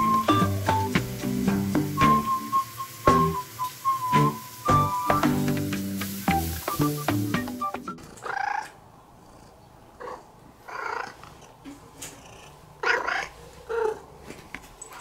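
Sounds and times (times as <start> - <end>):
music notes: 0.0 - 8.0
cat meowing: 12.8 - 14.0.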